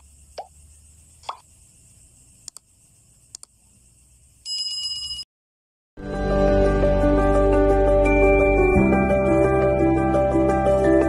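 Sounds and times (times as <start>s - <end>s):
mouse clicks: 3.3s - 3.6s
bell ringing: 8.0s - 9.4s.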